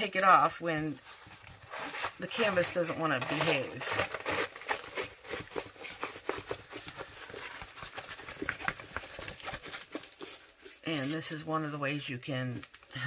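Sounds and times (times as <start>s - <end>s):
canvas and paper rustling: 0.0s - 11.6s
small crackles and taps: 6.3s - 10.4s.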